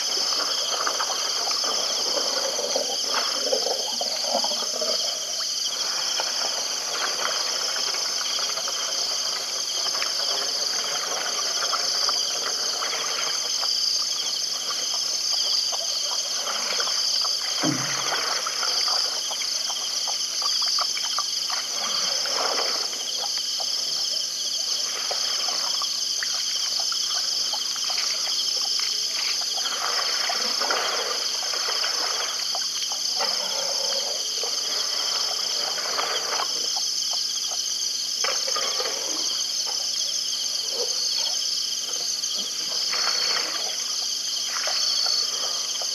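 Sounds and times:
insects trilling: 0:00.0 - 0:45.9
animal lapping water: 0:14.5 - 0:23.8, 0:24.8 - 0:36.9, 0:42.4 - 0:43.9.

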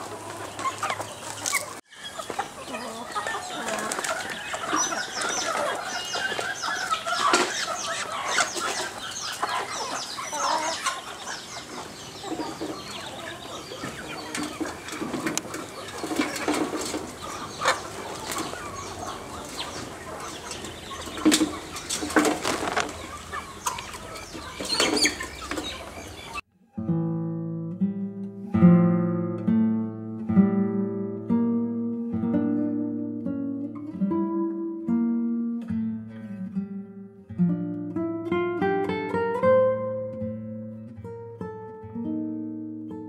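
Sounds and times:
chickens clucking: 0:00.0 - 0:26.5
sharp knocks and rustles: 0:13.8 - 0:18.6, 0:19.5 - 0:25.8.

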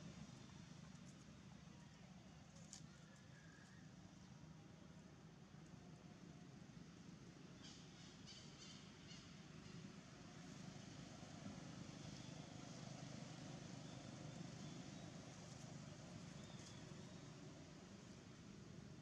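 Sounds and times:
distant road traffic rumble: 0:00.0 - 0:19.0.

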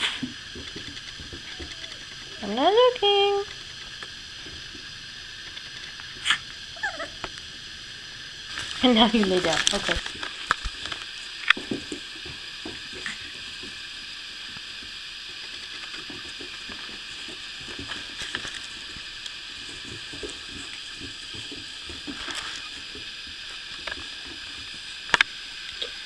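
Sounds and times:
steady hiss: 0:00.0 - 0:26.0
puppies scuffling on carpet: 0:08.5 - 0:11.2.

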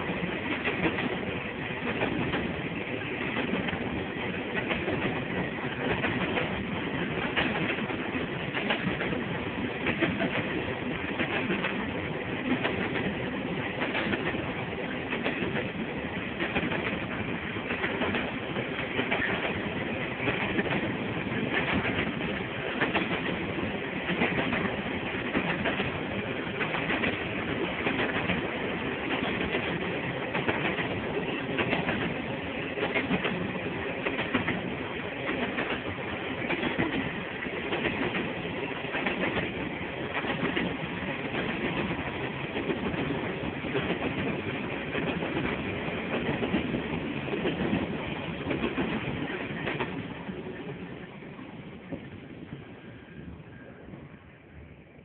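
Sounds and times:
train wheels clicking at rail joints: 0:00.0 - 0:54.6
freight train rumble: 0:00.0 - 0:55.0.

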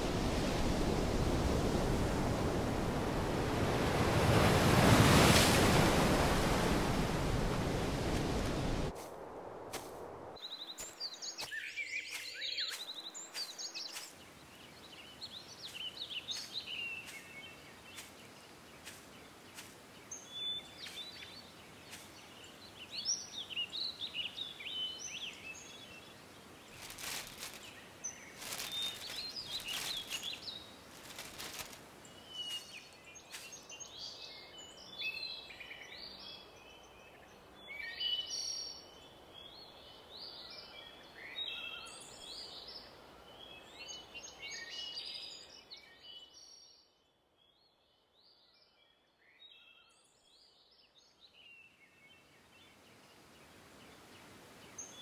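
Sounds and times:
birds chirping and singing: 0:10.4 - 0:36.3.

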